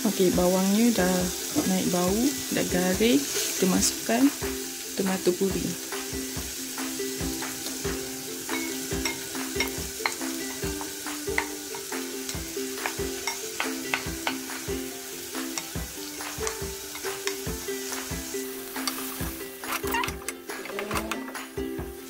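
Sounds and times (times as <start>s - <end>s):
paste sizzling in oil: 0.0s - 22.0s
quiet background music: 0.0s - 22.0s.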